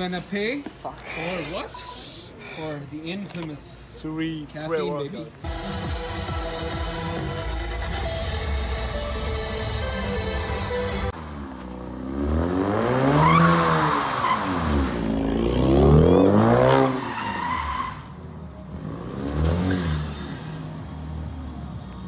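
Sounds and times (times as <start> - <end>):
background music: 5.4 - 11.2
car engine revving: 5.4 - 21.5
tyres squealing and skidding: 12.8 - 15.0, 15.6 - 18.4.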